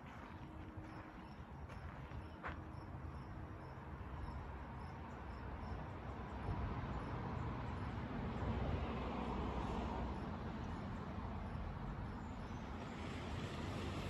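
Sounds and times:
insect chirping: 0.9 - 7.2.

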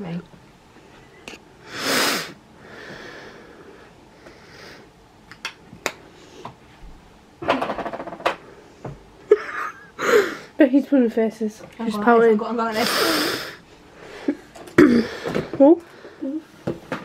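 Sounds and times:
woman laughing: 9.3 - 10.3.

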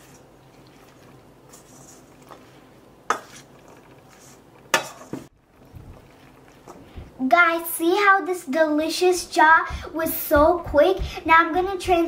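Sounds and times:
spoon stirring salad: 0.0 - 7.2.

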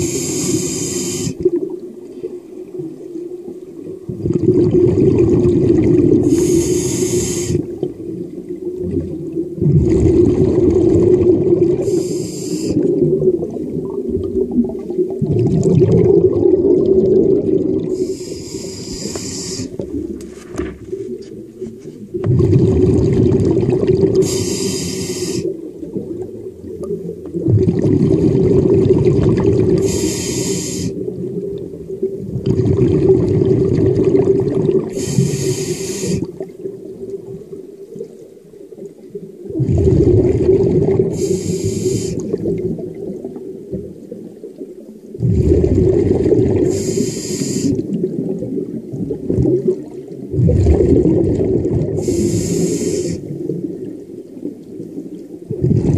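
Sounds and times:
diver breathing through regulator: 0.0 - 1.5, 6.2 - 7.8, 11.8 - 12.9, 17.9 - 19.8, 24.1 - 25.6, 29.8 - 31.0, 34.9 - 36.4, 41.0 - 42.4, 46.6 - 47.9, 52.0 - 53.3
low rushing bubbling noise: 0.0 - 30.1, 30.9 - 47.0, 47.7 - 55.9.

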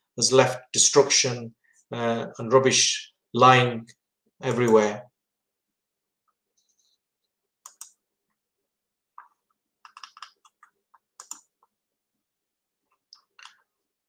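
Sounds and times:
computer mouse clicks: 7.6 - 8.0, 9.2 - 11.8
keyboard typing: 7.6 - 8.0, 9.1 - 11.8, 12.9 - 13.7.

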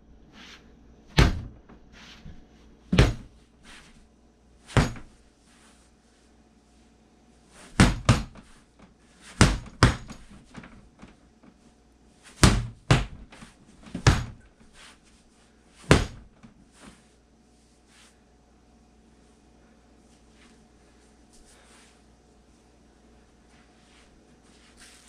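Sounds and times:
baseball bat hitting dummy: 4.7 - 5.1, 7.7 - 8.4, 9.4 - 10.3, 12.4 - 14.4, 15.8 - 16.3.

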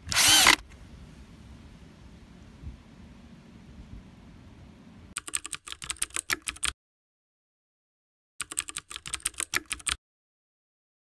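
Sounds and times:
faint background hiss: 0.6 - 5.2
keyboard typing clicks: 5.2 - 6.8, 8.4 - 10.0.

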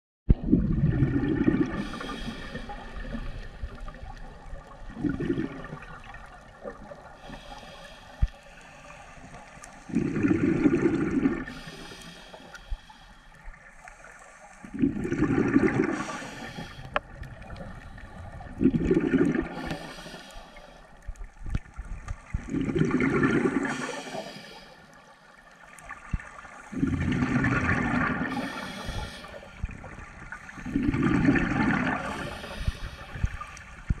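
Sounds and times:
bubbles gurgling: 0.3 - 7.6, 9.5 - 12.0, 14.6 - 20.2, 21.3 - 24.4, 25.6 - 34.0
diver breathing through regulator: 1.7 - 3.7, 7.2 - 21.0, 23.4 - 25.0, 26.8 - 33.4.

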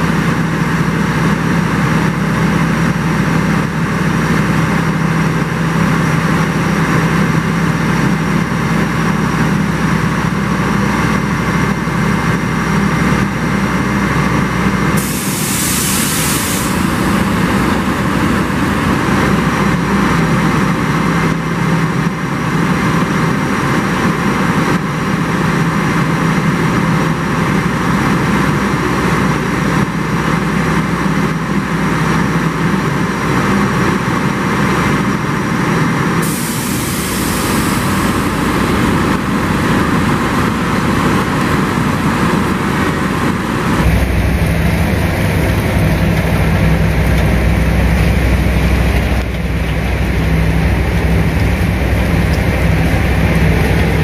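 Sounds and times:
vehicle engine running: 0.0 - 54.0
air release hiss: 15.0 - 19.1, 36.2 - 41.2.

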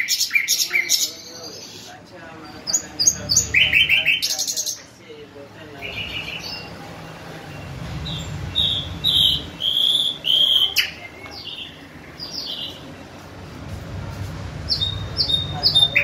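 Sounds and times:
bird singing whistled notes: 7.6 - 12.8.

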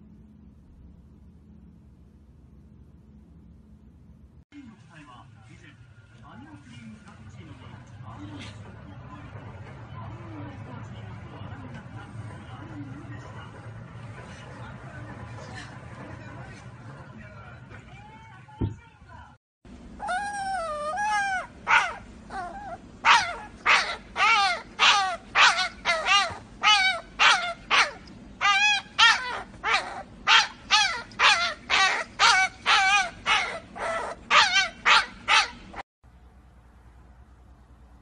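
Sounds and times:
puppy yelping: 20.0 - 35.8.

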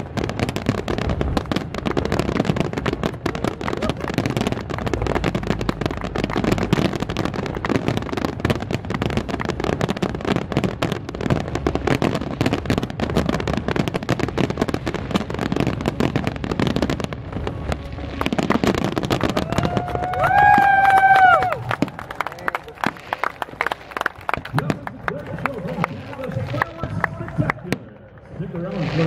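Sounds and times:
fireworks bursting and crackling: 0.0 - 29.0.

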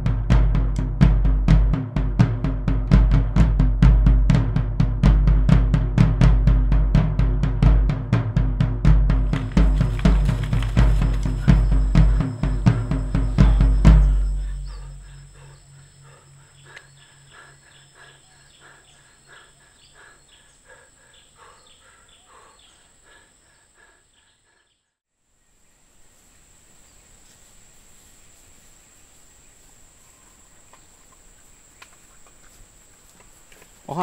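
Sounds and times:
faint outdoor background: 0.0 - 34.0
rhythmic chirping: 9.2 - 23.8
high-pitched insect drone: 9.5 - 20.0.

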